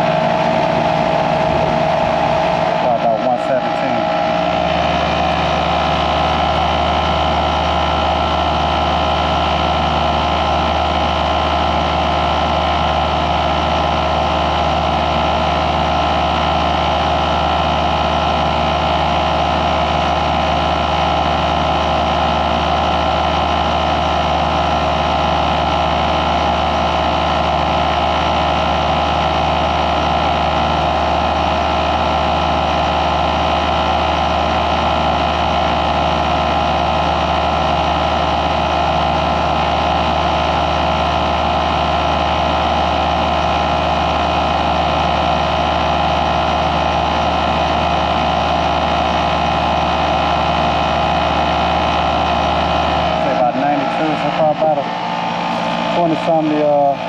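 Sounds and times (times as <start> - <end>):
air conditioner unit humming: 0.0 - 57.0.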